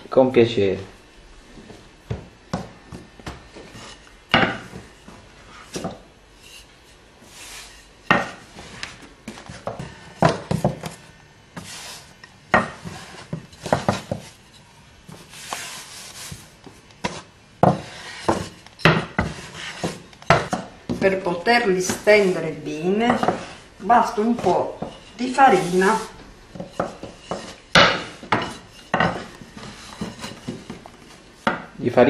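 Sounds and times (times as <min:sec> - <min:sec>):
rolling pin rubbing on dough: 0:02.5 - 0:31.7
rolling pin knocking: 0:12.5 - 0:14.3, 0:17.0 - 0:21.2, 0:23.1 - 0:31.8.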